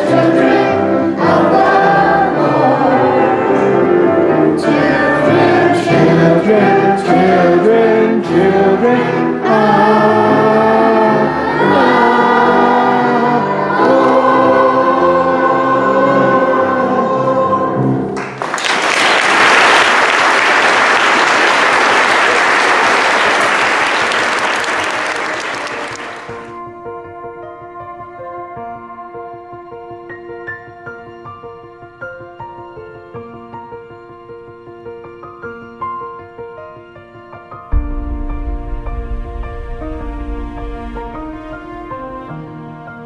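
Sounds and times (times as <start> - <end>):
children singing: 0.0 - 18.1
applause: 18.2 - 26.5.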